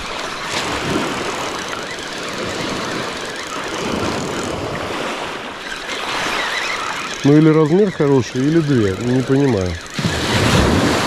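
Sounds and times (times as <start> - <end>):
surf breaking on shore: 2.4 - 11.0
wind noise on microphone: 9.8 - 11.0.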